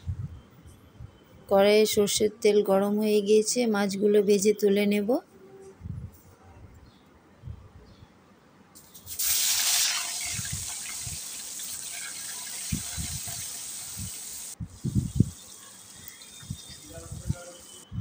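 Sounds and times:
fish frying in hot oil: 9.1 - 14.6.

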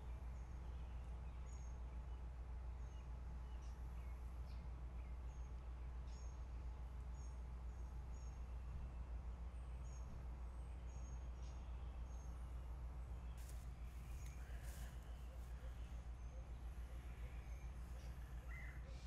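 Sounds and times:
steady low rumble: 12.4 - 19.0.

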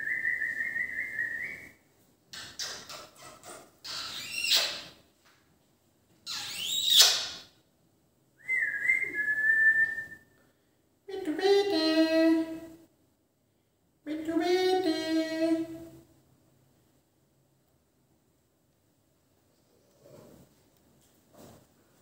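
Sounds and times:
parakeet whistling: 6.3 - 7.3.

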